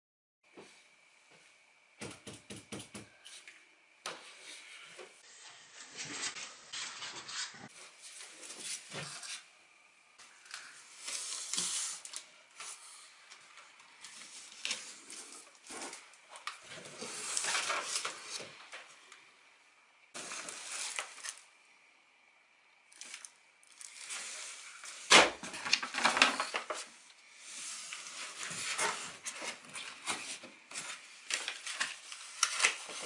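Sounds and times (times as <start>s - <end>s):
cardboard rustling and scraping: 14.1s - 18.6s, 27.5s - 33.0s.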